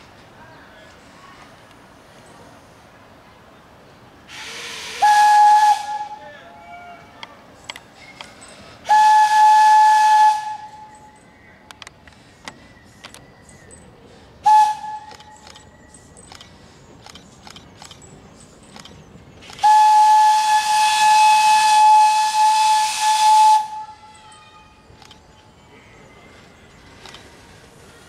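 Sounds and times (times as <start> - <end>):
steam hiss: 4.2 - 6.2, 19.4 - 24.5
locomotive whistle: 4.3 - 7.1, 8.8 - 11.2, 14.4 - 15.4, 19.6 - 24.8
faint clicks: 11.6 - 13.3, 15.0 - 19.7.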